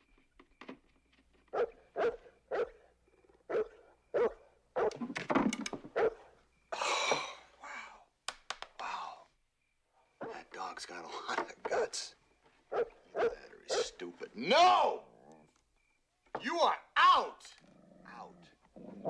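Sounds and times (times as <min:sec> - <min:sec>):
dog barking deeply: 0:01.6 - 0:05.0, 0:05.9 - 0:06.4, 0:12.7 - 0:14.0
sharp clicks: 0:08.2 - 0:08.9.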